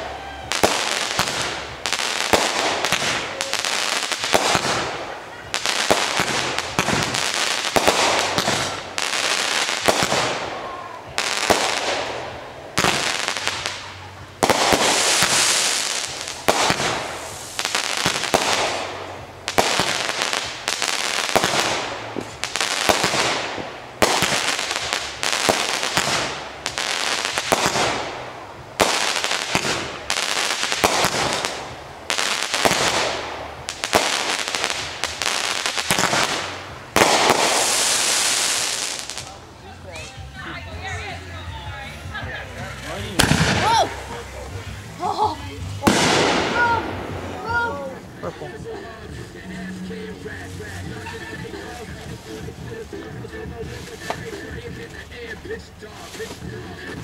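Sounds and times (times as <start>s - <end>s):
fireworks bangs: 0.0s - 39.4s, 42.9s - 57.0s
rush of bursting fireworks: 0.0s - 39.6s, 40.8s - 57.0s.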